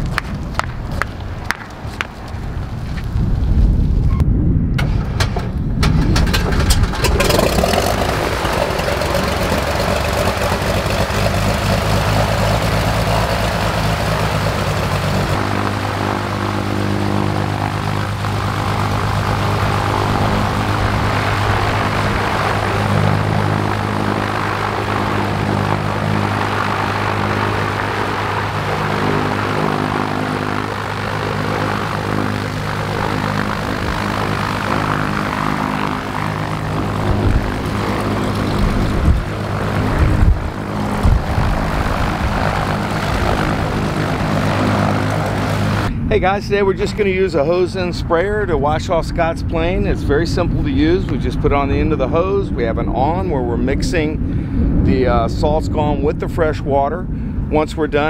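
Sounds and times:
piston aircraft engine idling: 0:04.8 - 0:46.2.

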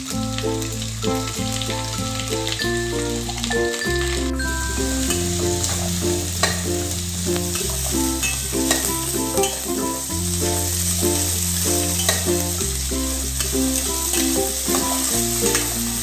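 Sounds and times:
background music with bass line: 0:00.0 - 0:16.0
vegetables sizzling in a pan: 0:00.0 - 0:16.0
spoon clicking against pan: 0:12.0 - 0:12.3.

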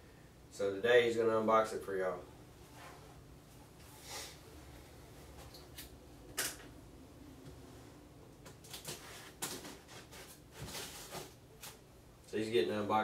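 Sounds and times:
tape rustling: 0:08.4 - 0:11.8.

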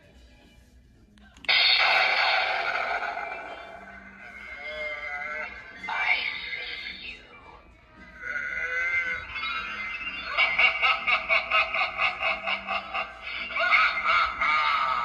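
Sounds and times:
eerie gliding sounds: 0:01.5 - 0:15.0
rhythmic cackling laugh: 0:09.0 - 0:15.0.

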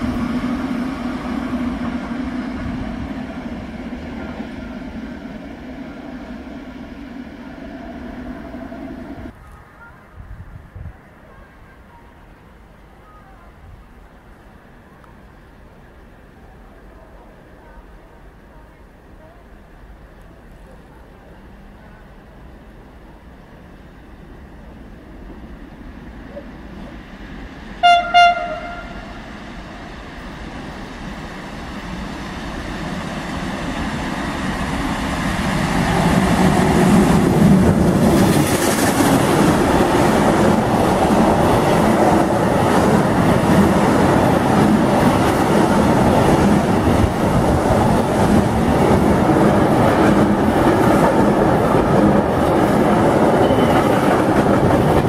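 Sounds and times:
freight train rumbling past: 0:00.0 - 0:55.0
train horn blasts: 0:27.8 - 0:29.2.

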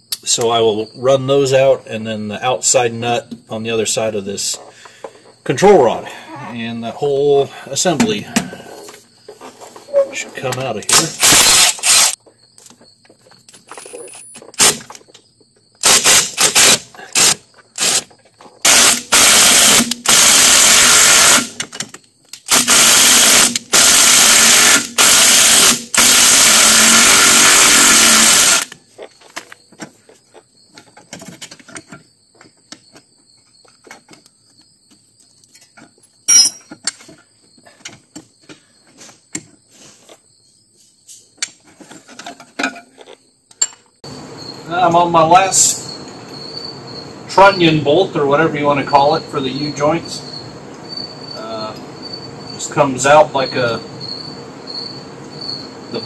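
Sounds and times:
impact tool running bolts: 0:10.9 - 0:12.2, 0:15.8 - 0:28.8.

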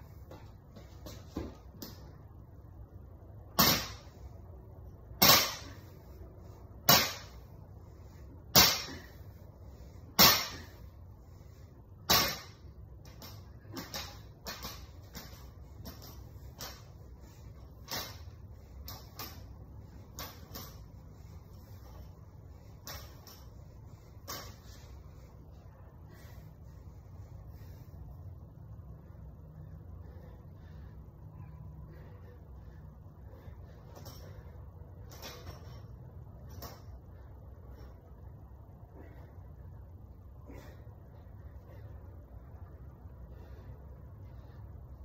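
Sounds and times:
barbell thudding on floor: 0:03.6 - 0:04.1.

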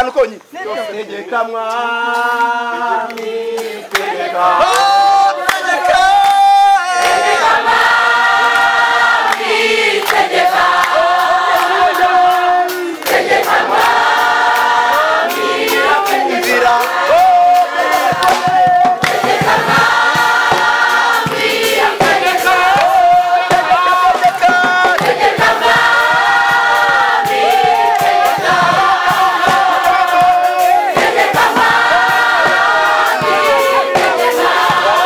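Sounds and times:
choir singing: 0:00.9 - 0:35.0.

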